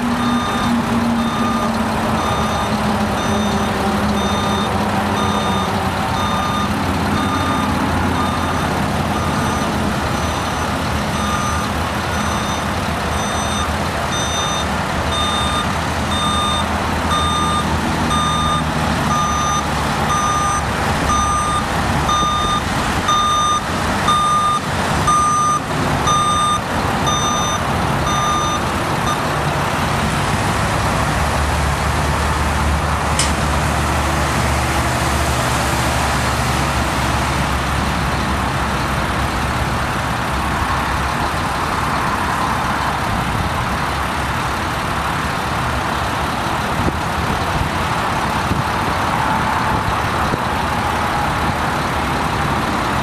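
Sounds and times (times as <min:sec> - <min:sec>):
backup alarm beeping: 0:00.0 - 0:29.2
diesel engine running: 0:00.0 - 0:53.0.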